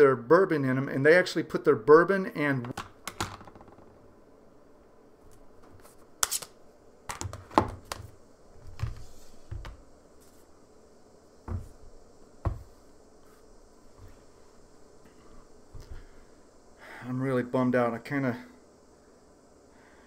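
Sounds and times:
objects clicking and knocking on desk: 2.6s - 3.9s, 7.1s - 8.1s.

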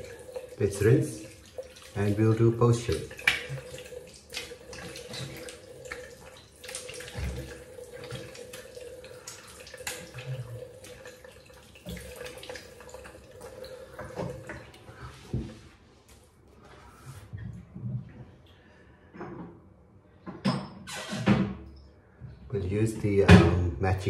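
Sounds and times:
water splashing on face: 0.0s - 15.2s
tap running into sink: 2.8s - 8.8s, 13.9s - 15.6s.

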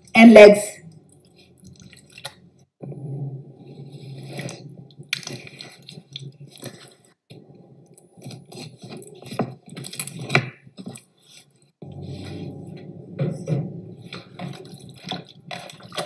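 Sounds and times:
steady low hum: 11.8s - 16.0s.

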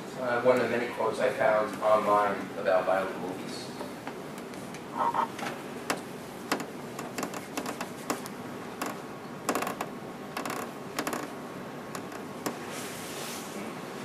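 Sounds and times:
room noise: 0.0s - 14.0s
small clicks and creaks: 5.9s - 12.6s.

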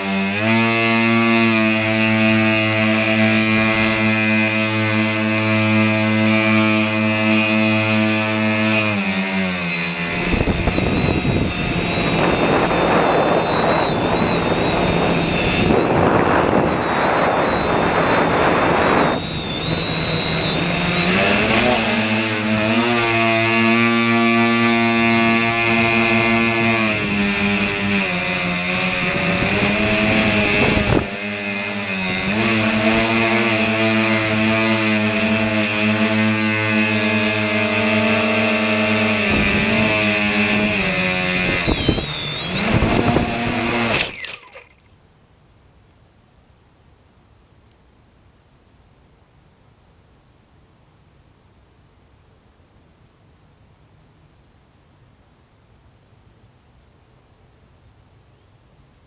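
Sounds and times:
electric motors and propellers buzzing: 0.0s - 45.0s.

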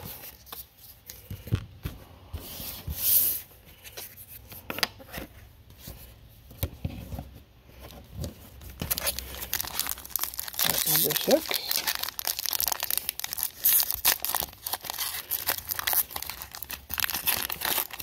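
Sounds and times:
foil pack rustle: 8.9s - 18.0s.

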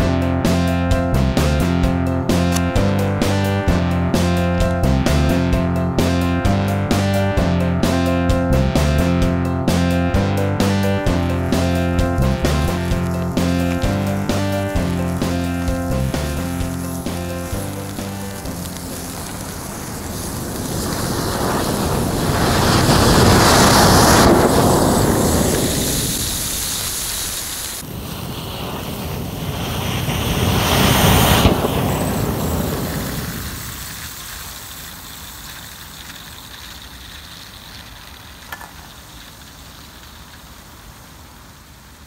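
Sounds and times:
sparklers hissing: 10.3s - 42.0s.

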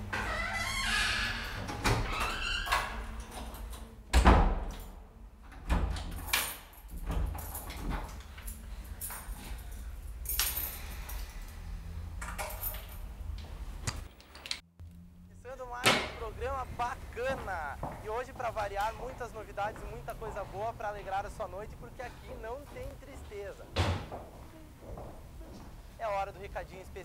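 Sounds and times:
keys jangling: 6.1s - 13.4s
wooden door shutting thud: 23.8s - 24.3s.

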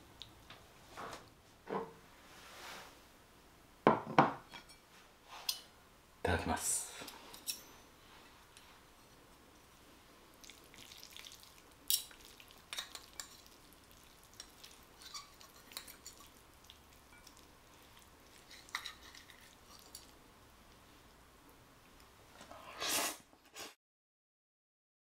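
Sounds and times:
cutlery clinking on plate: 7.3s - 7.7s
fork twirling spaghetti on plate: 10.4s - 20.2s.

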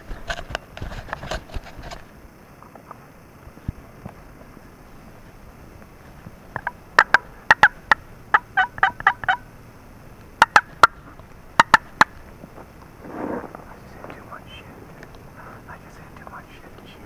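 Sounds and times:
turkey calling: 6.5s - 9.6s, 10.4s - 12.3s.

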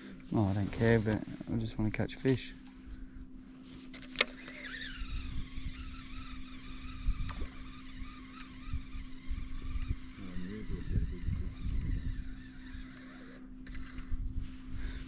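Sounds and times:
steady low hum: 0.0s - 15.0s
reel spool whirring: 3.7s - 15.0s
fishing reel click: 4.0s - 10.3s, 10.9s - 14.2s.

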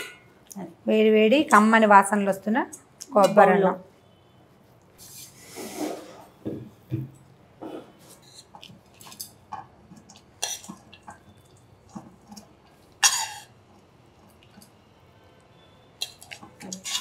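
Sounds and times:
metal spoon scraping a pan: 16.0s - 17.0s.

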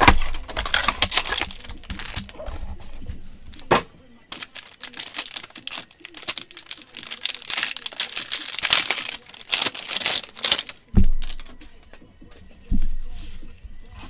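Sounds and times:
wrapper crinkling and tearing: 0.0s - 2.6s, 4.3s - 11.6s.

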